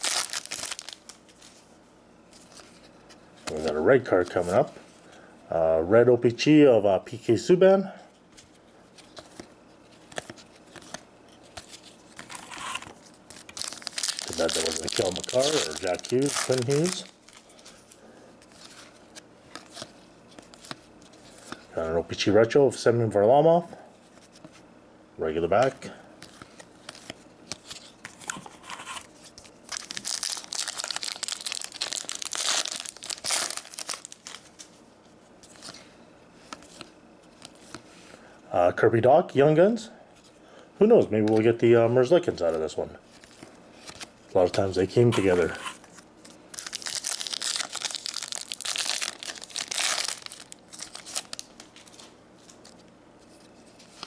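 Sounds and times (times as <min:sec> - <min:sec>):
cards crinkling and rustling: 0:00.0 - 0:01.6, 0:02.3 - 0:04.7, 0:08.4 - 0:21.7, 0:25.6 - 0:34.8, 0:35.4 - 0:38.2, 0:42.3 - 0:54.0.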